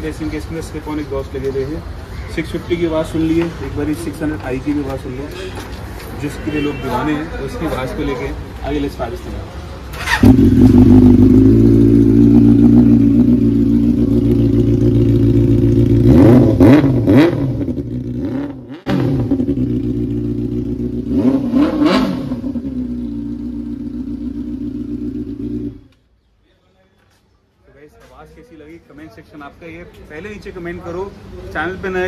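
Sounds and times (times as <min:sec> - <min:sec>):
motorcycle engine revving: 0:09.9 - 0:26.0
motorcycle engine idling: 0:10.1 - 0:16.2, 0:19.2 - 0:21.1, 0:22.6 - 0:25.9.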